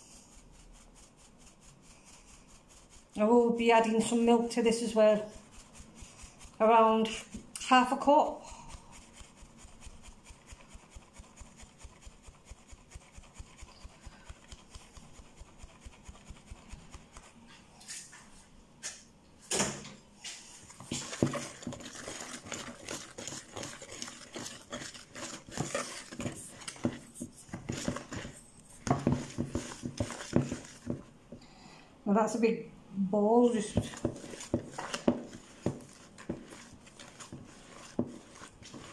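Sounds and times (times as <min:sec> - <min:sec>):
rustling and knocks in bowl: 0:19.5 - 0:31.4, 0:33.6 - 0:38.9
flour sieve tapping: 0:20.7 - 0:31.4, 0:33.6 - 0:38.9.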